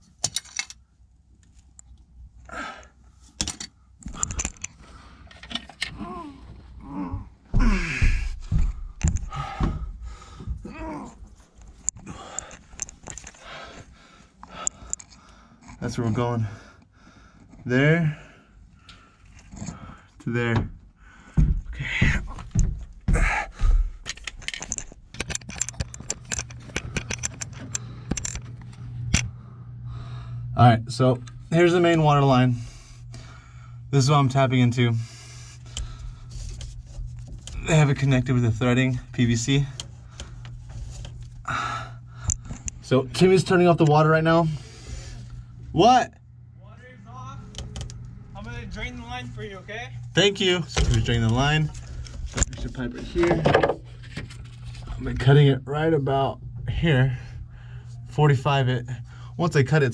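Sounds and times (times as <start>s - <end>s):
tools clicking and clinking: 0.2s - 0.8s, 3.4s - 6.0s, 24.0s - 29.3s
faint low hum: 0.3s - 59.9s
person breathing: 4.1s - 5.6s, 6.8s - 11.3s, 11.9s - 15.8s, 20.9s - 24.1s, 29.1s - 30.6s, 32.5s - 33.9s, 35.0s - 36.6s, 41.4s - 42.8s, 44.5s - 45.7s, 57.1s - 58.1s, 59.0s - 59.4s
heavy thumps and scuffs: 6.6s - 10.7s, 20.5s - 24.0s.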